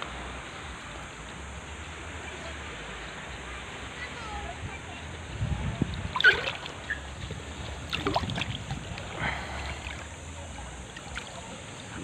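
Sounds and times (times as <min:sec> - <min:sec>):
seawater lapping: 0:00.0 - 0:12.0
wind rumbling on microphone: 0:04.2 - 0:12.0.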